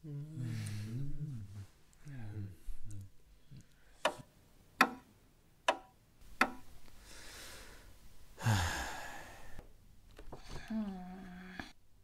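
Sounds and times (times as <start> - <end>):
person sighing: 0.0 - 3.0, 8.4 - 9.6, 10.3 - 11.8.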